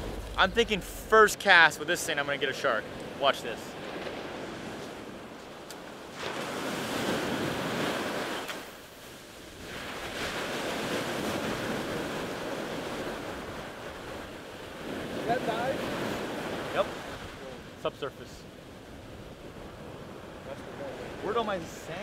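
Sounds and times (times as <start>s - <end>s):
ocean surf washing ashore: 0.0s - 22.0s.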